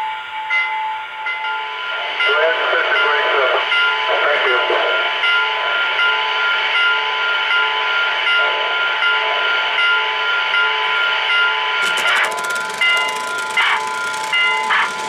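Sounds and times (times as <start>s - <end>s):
rapid clicking: 11.8s - 15.0s
soft regular chuffing: 11.8s - 15.0s.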